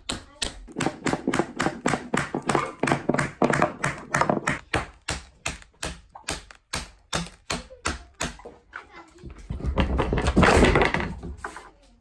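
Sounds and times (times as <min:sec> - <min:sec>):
rubber mallet tapping wooden wedge: 0:00.0 - 0:08.5.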